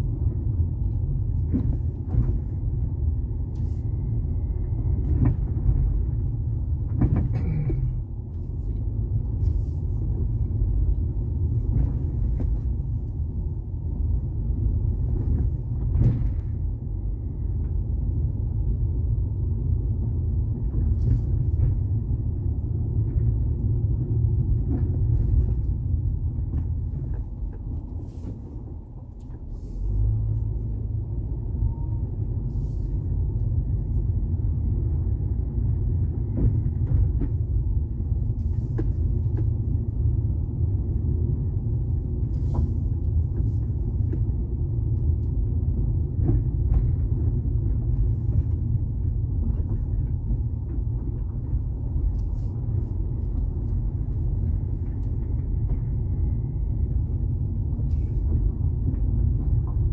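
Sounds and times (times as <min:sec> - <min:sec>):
suspension knocks and clicks: 0:00.1 - 0:03.6, 0:04.9 - 0:16.9, 0:20.3 - 0:30.9, 0:35.6 - 0:59.9.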